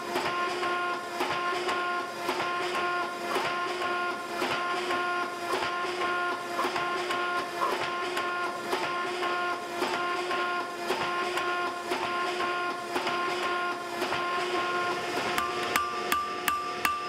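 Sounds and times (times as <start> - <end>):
forging dies striking steel: 11.0 - 17.0.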